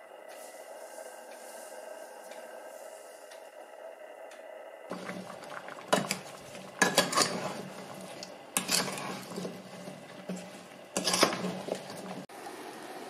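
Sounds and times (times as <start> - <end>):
steady low hum: 0.0 - 12.3
rain pattering: 4.9 - 8.6
wooden spoon scraping a pot: 4.9 - 12.3.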